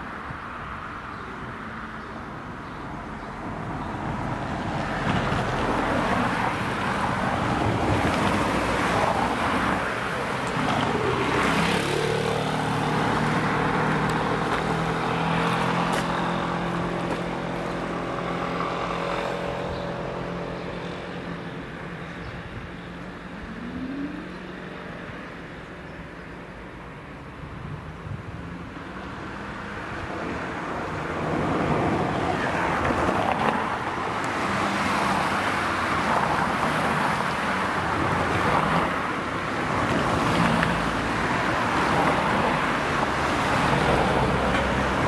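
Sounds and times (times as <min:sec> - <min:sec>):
vehicles passing close by: 0:00.0 - 0:45.0
engine low hum: 0:19.1 - 0:25.9.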